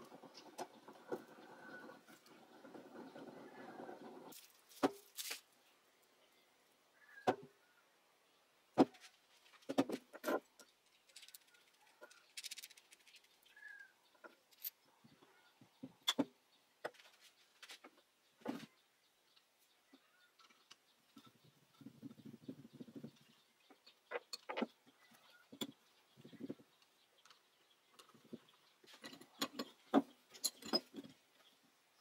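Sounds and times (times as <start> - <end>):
metal parts rattling: 10.2 - 13.4.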